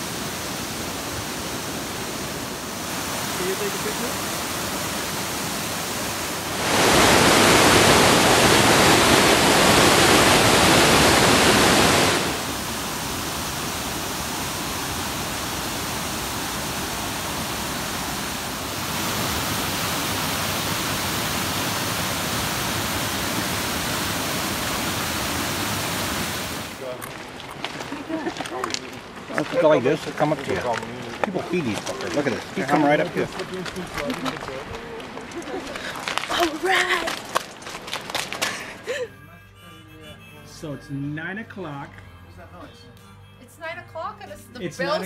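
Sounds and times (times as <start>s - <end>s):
waterfall rushing: 0.0s - 27.8s.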